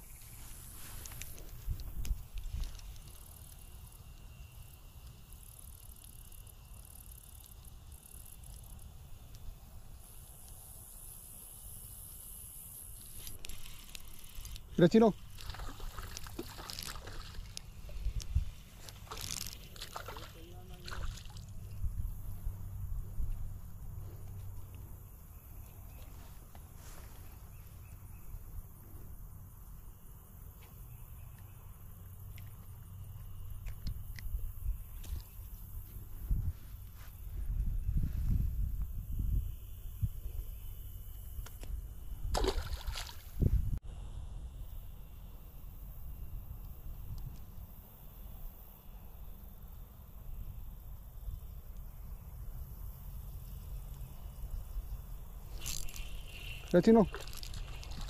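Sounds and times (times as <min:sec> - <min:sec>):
insects chirring: 0:00.0 - 0:58.0
fishing reel whirring: 0:18.9 - 0:20.3
low steady rumble: 0:21.3 - 0:25.1.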